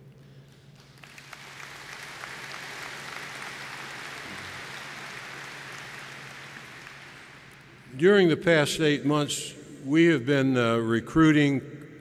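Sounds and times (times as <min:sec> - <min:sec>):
audience applauding: 0:00.7 - 0:07.9.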